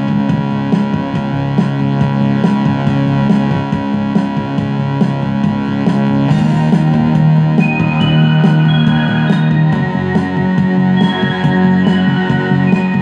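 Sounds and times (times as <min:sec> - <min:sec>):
bass line: 0:00.0 - 0:13.0
drums steady beat: 0:00.0 - 0:13.0
keyboard chords: 0:06.6 - 0:13.0.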